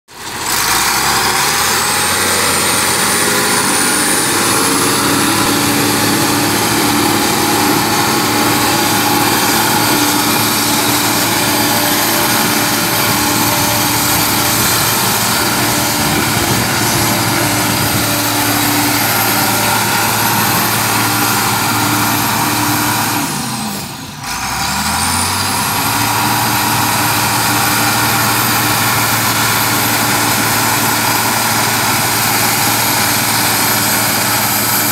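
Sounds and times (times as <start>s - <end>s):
dozer diesel engine running hard: 0.1s - 34.9s
high whine: 1.1s - 24.2s.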